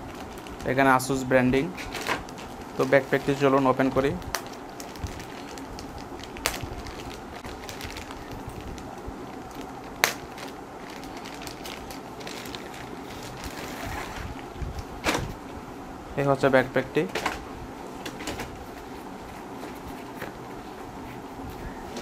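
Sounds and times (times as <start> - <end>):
plastic bag crinkling: 0.0 - 15.3.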